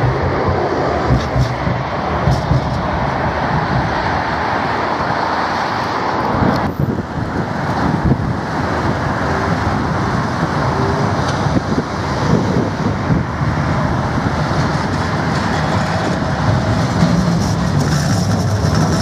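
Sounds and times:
cars passing: 0.0s - 19.0s
tram running past: 0.0s - 19.0s.

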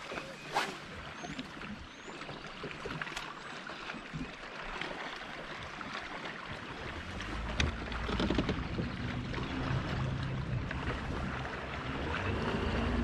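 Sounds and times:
waves lapping against boat hull: 0.0s - 13.0s
low rumble: 7.0s - 13.0s.

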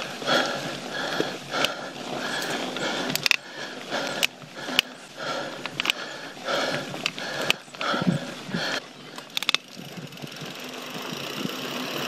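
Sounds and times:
person breathing hard: 0.0s - 9.4s
bike clicks and rattles over rock: 0.0s - 12.0s.

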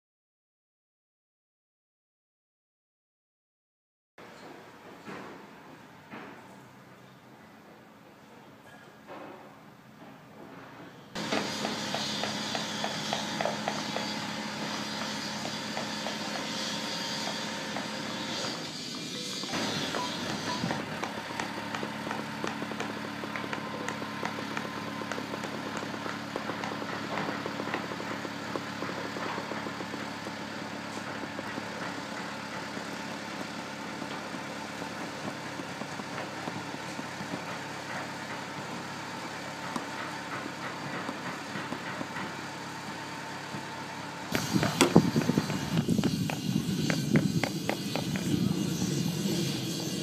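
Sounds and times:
heavy machine engine idling: 11.2s - 50.0s.

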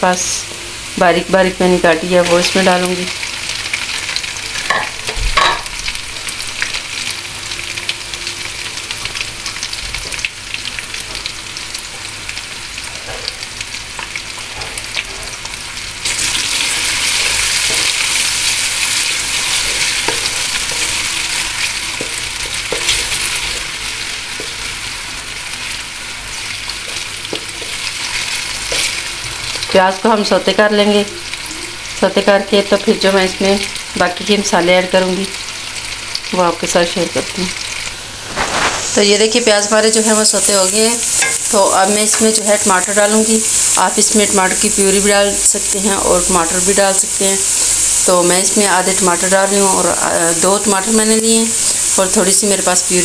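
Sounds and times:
onion sizzling in hot oil: 0.0s - 53.0s.

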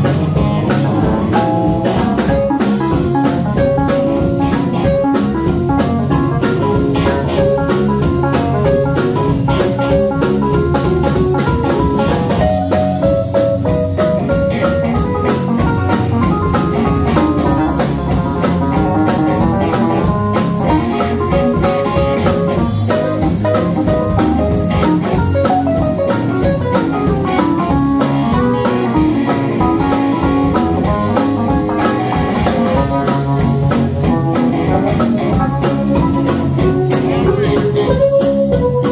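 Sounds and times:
keyboard playing: 0.0s - 38.9s
live band playing: 0.0s - 38.9s.

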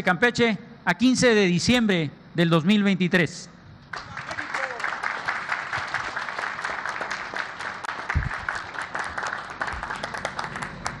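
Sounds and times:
crowd applauding: 3.9s - 11.0s.

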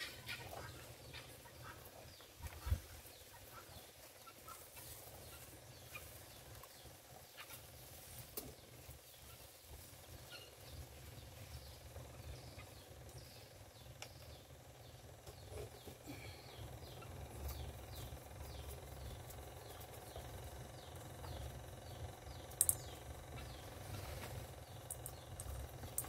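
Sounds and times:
low steady rumble: 0.1s - 26.0s
faint bird chirps: 8.4s - 26.0s.

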